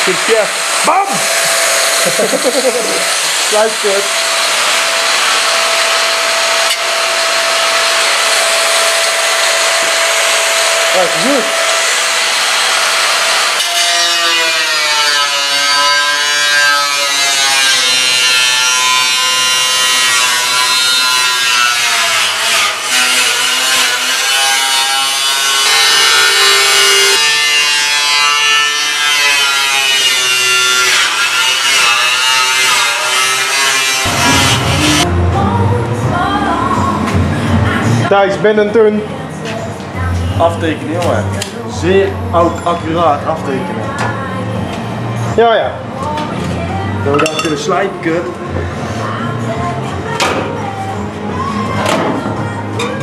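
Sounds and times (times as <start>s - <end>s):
angle grinder cutting steel: 0.0s - 35.2s, 47.1s - 48.2s
music with singing voice: 34.1s - 53.0s.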